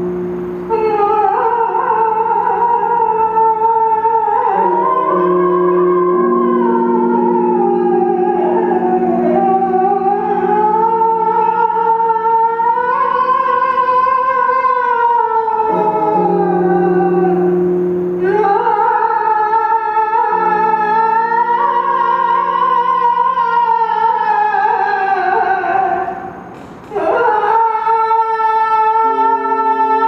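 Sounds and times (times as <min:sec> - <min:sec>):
low steady drone: 0:00.0 - 0:30.0
person singing wavering high tone: 0:00.0 - 0:30.0.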